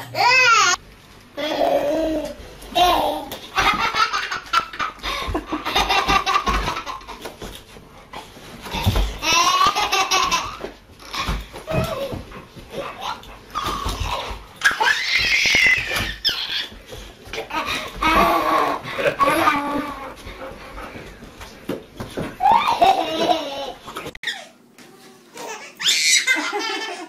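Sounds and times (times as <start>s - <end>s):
baby laughing: 8.7s - 12.2s, 12.9s - 16.8s, 17.4s - 20.1s, 22.4s - 24.6s, 25.4s - 27.0s.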